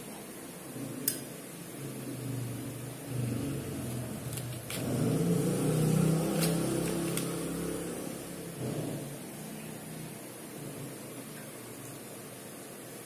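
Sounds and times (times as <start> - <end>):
low engine-like hum: 1.7 - 11.1.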